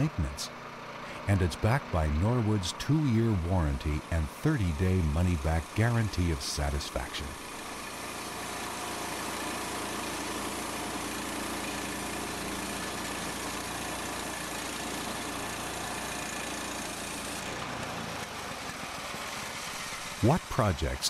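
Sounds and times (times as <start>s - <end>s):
sawmill engine drone: 0.0s - 21.0s
band saw cutting log: 1.0s - 21.0s.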